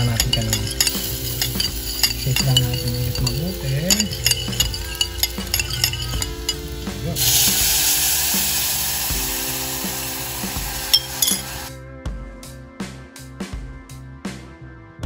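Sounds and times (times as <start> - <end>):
utensil clinking and stirring: 0.0 - 8.6, 10.7 - 11.7
liquid sizzling in hot oil: 0.0 - 11.7
background music: 0.0 - 15.0.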